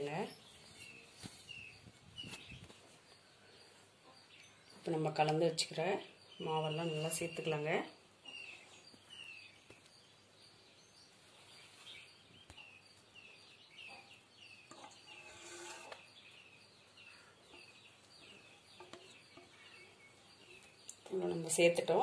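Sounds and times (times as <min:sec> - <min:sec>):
faint bird chirps: 0:06.1 - 0:21.4.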